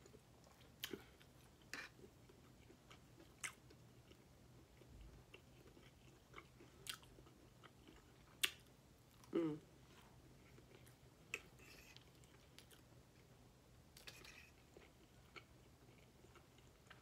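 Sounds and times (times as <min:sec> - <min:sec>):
person chewing food: 0:00.0 - 0:13.3, 0:13.9 - 0:17.0
person humming: 0:09.3 - 0:09.7.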